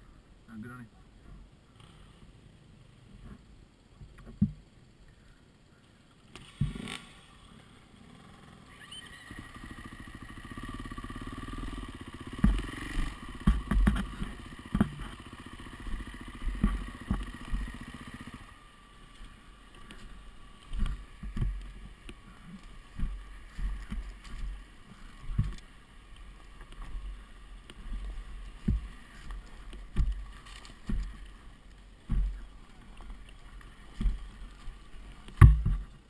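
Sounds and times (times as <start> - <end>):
dirt bike engine at low revs: 0.0 - 36.0
bike knocking over rocks: 6.4 - 7.2, 10.1 - 18.4, 19.1 - 36.0.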